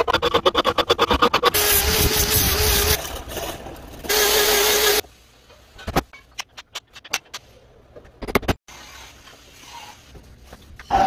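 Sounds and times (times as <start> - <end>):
saw cutting wood: 0.0 - 3.5, 4.1 - 5.0.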